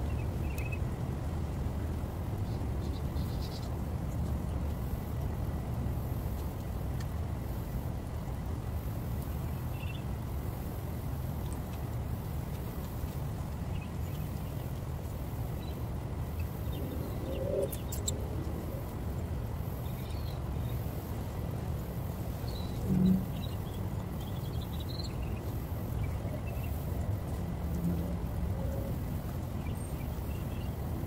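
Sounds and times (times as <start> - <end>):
low rumble: 15.6 - 20.8, 22.5 - 24.1.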